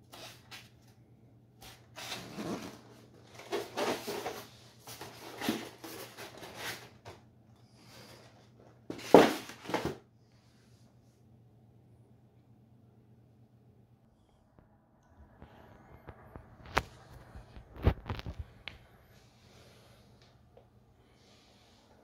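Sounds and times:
foam trays rubbing and scraping: 0:01.6 - 0:07.1
foam tray bumping on floor: 0:08.9 - 0:10.0.

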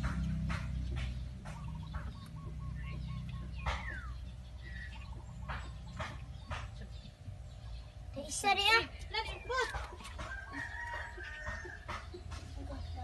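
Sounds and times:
sharp knocks: 0:00.0 - 0:02.2, 0:03.6 - 0:04.1, 0:05.4 - 0:06.9
birds chirping: 0:00.0 - 0:13.0
steady low hum: 0:00.0 - 0:13.0.

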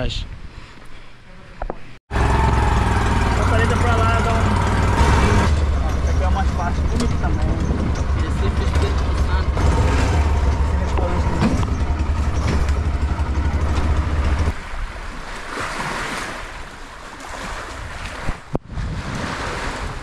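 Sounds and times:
wind buffeting microphone: 0:05.9 - 0:15.0
waves washing onto beach: 0:14.5 - 0:20.0.

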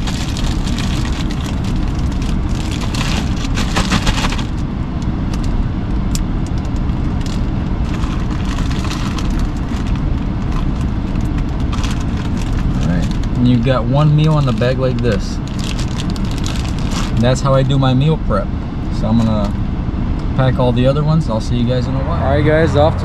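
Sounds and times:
plastic bag crinkling: 0:00.0 - 0:04.6, 0:07.2 - 0:13.5, 0:14.2 - 0:17.2.

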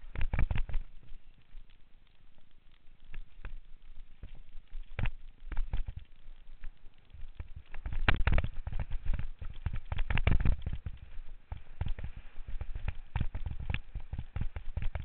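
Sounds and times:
mountain bike rattling over trail: 0:07.2 - 0:15.0.

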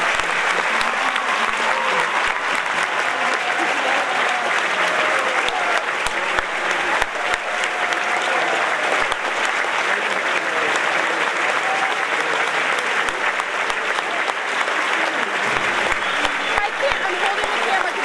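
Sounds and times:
audience applauding: 0:00.0 - 0:18.0
voices calling out in crowd: 0:00.0 - 0:18.0.

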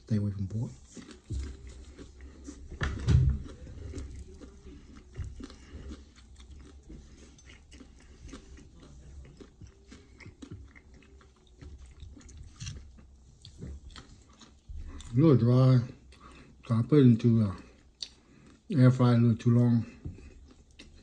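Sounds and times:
person chewing wet mouth clicks: 0:00.9 - 0:15.2, 0:17.9 - 0:18.6.

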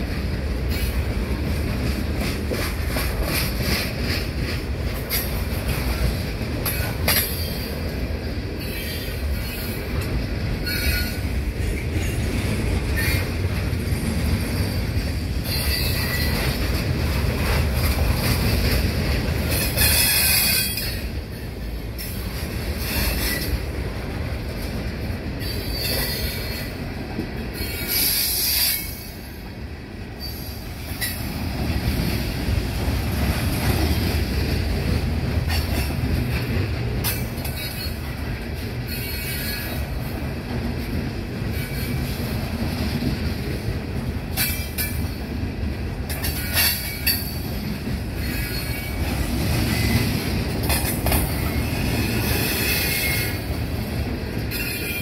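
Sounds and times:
steel wheels rumbling on rail: 0:00.0 - 0:55.0.

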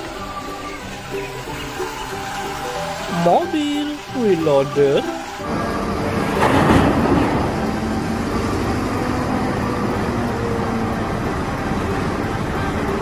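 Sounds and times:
diesel engine running under load: 0:00.0 - 0:13.0
earth pouring into truck: 0:02.1 - 0:08.3.

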